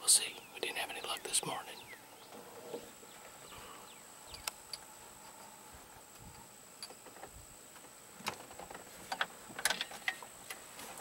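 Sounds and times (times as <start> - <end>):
faint sharp clicks: 4.3 - 4.9.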